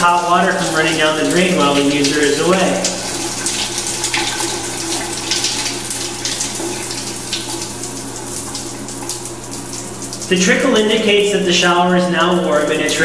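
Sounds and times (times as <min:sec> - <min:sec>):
shower water spraying: 0:00.0 - 0:13.0.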